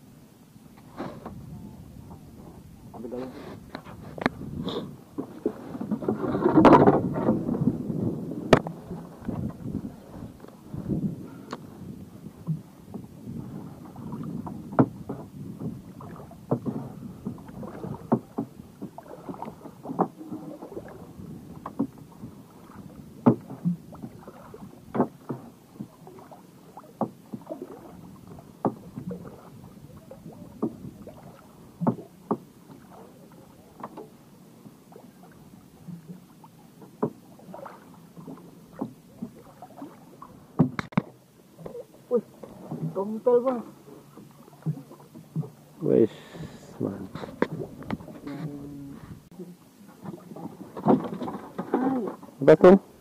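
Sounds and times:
water slapping boat hull: 0.0 - 53.0.

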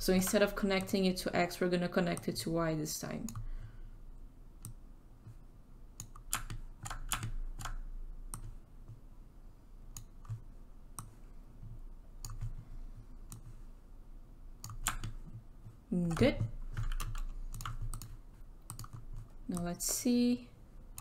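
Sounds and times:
mouse and keyboard clicking: 6.0 - 8.5, 16.0 - 20.0.

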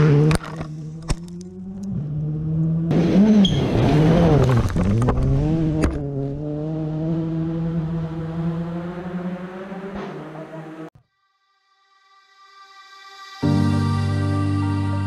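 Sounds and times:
rally car engine passing: 0.0 - 10.9.

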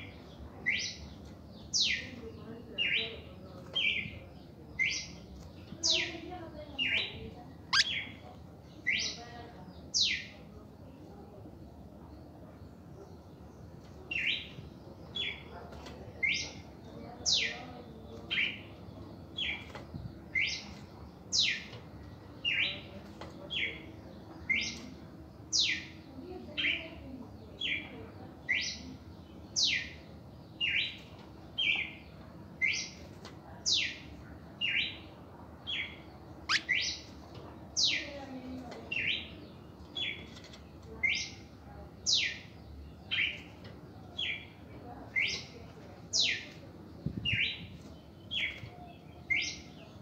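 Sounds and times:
bird singing short clear notes: 7.7 - 8.2.

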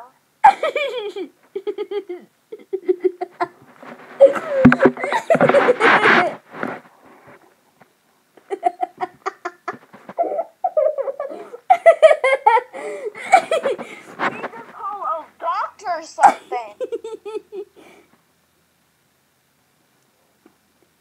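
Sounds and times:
children laughing: 0.4 - 3.6, 4.2 - 6.4, 8.4 - 14.9, 16.2 - 17.9
tablet being handled bump: 4.6 - 5.8.

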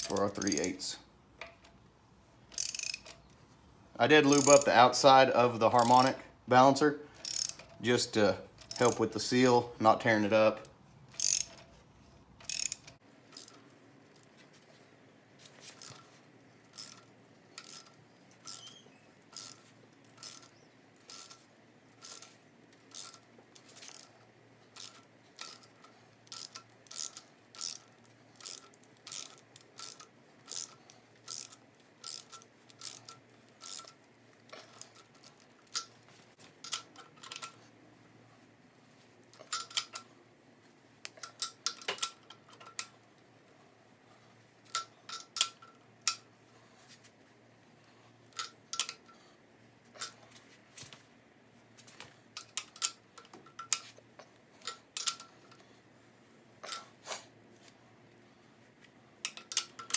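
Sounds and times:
hand ratchet clicking: 0.0 - 0.8, 2.5 - 3.3, 4.2 - 4.8, 5.8 - 6.2, 7.2 - 7.8, 8.6 - 9.1, 11.1 - 11.7, 12.4 - 13.6, 16.8 - 21.4, 22.0 - 23.2, 23.8 - 36.0.

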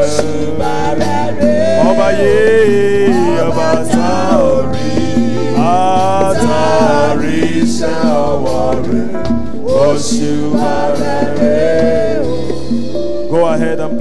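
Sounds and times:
man singing into a microphone: 0.0 - 12.3
gospel band with keyboard and drums: 0.0 - 14.0.

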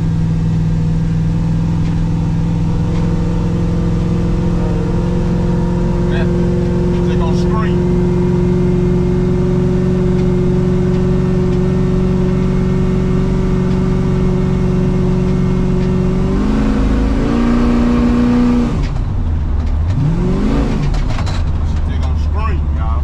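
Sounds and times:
pickup engine pulling: 0.0 - 23.0.

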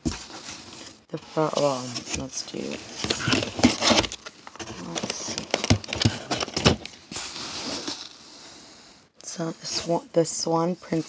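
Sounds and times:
plastic cases clicking together: 3.0 - 7.0.

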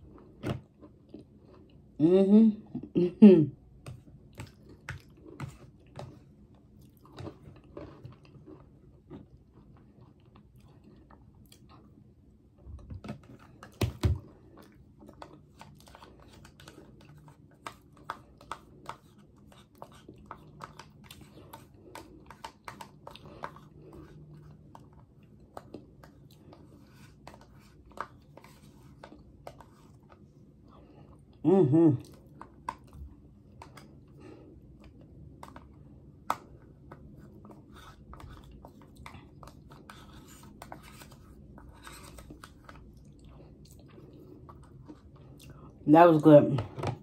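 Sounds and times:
chewing soft dessert: 0.0 - 2.8, 3.7 - 45.8
plastic spoon scraping cup: 39.4 - 42.9.

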